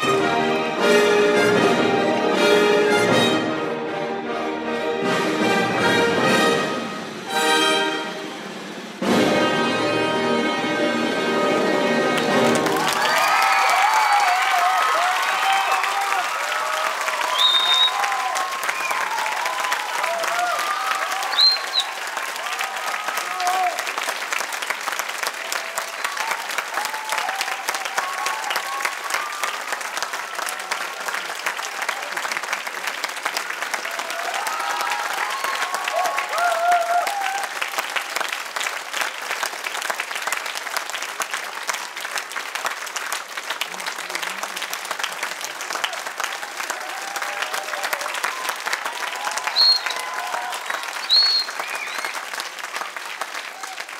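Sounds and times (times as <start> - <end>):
audience applauding: 0.0 - 3.2, 11.1 - 53.9
shrill whistle: 17.3 - 18.1, 21.3 - 22.0, 49.4 - 52.3.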